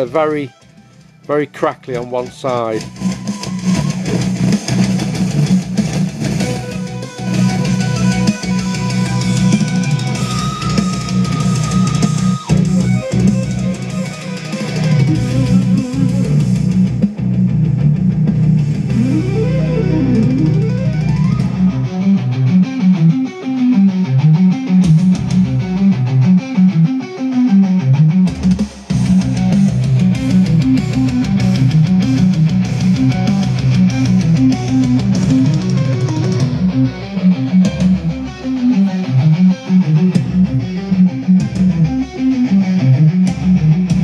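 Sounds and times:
heavy metal music: 0:00.0 - 0:44.0
speaker crackle: 0:18.2 - 0:23.1, 0:27.8 - 0:44.0.

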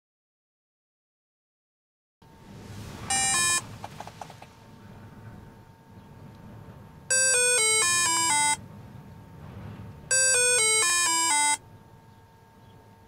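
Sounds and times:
descending electronic beeps: 0:03.1 - 0:03.7, 0:07.1 - 0:08.6, 0:10.1 - 0:11.6.

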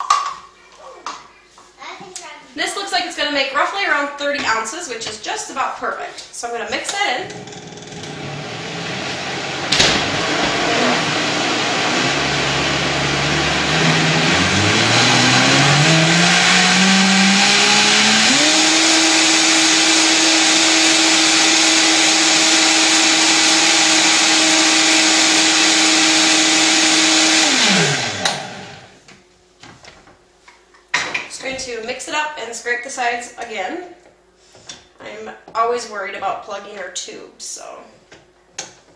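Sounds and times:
blender motor running: 0:07.2 - 0:29.0.

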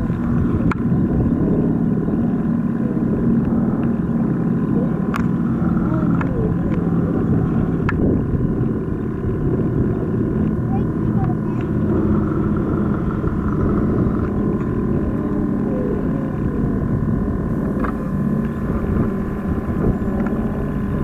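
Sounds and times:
propeller plane engines droning: 0:00.0 - 0:21.0
voices in background: 0:04.5 - 0:07.9, 0:09.9 - 0:17.5.

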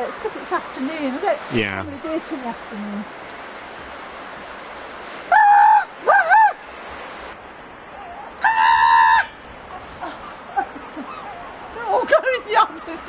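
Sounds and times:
person imitating gull calls: 0:01.5 - 0:01.9.

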